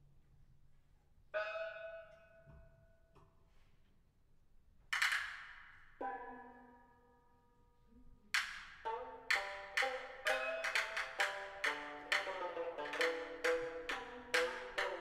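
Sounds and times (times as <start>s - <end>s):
metallic percussion strikes ringing: 1.4s - 2.8s, 8.9s - 15.0s.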